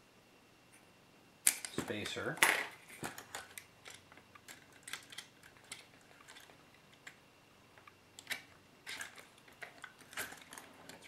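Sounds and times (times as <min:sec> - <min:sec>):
small plastic parts clicking: 0:03.0 - 0:07.2, 0:07.8 - 0:11.0.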